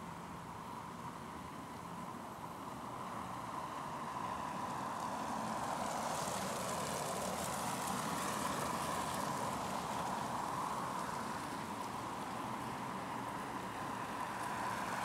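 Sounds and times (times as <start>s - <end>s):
cars driving on packed snow: 0.0s - 15.0s
city hum: 0.0s - 15.0s.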